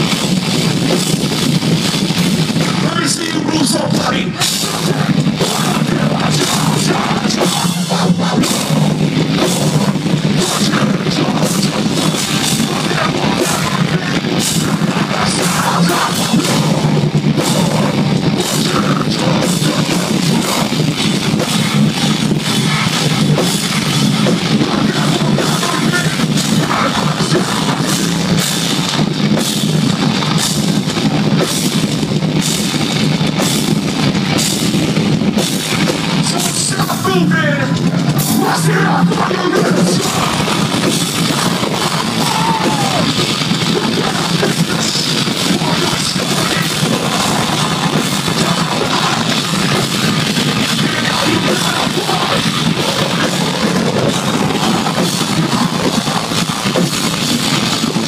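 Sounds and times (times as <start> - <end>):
distorted electric guitars: 0.0 - 58.0
drum kit with cymbals: 0.0 - 58.0
screamed vocals: 41.8 - 46.8.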